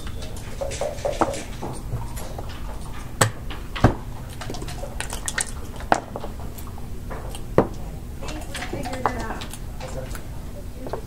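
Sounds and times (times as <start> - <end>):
checkers clacking on board: 0.0 - 11.0.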